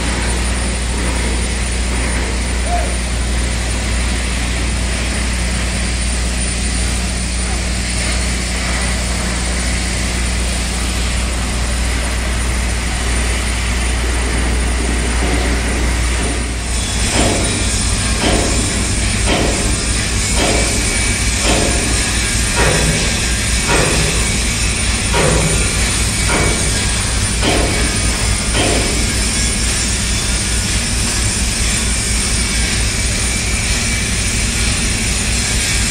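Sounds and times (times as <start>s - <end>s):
low machinery drone: 0.0s - 35.9s
hiss: 15.6s - 35.9s
sharp metallic knocks: 16.2s - 29.7s.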